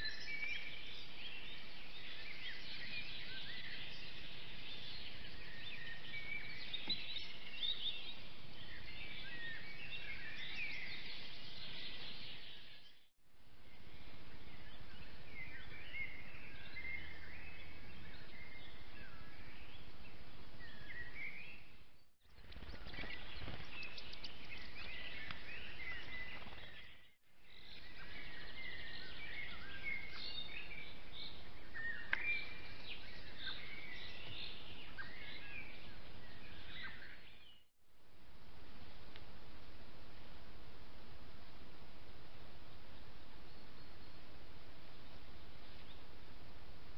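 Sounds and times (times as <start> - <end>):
birds chirping and warbling: 0.0 - 37.7, 42.8 - 46.6
microphone hiss: 37.9 - 46.9.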